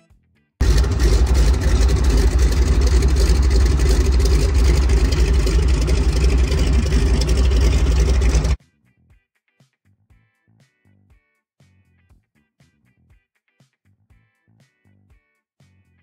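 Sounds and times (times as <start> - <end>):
floatplane engine droning: 0.6 - 8.6.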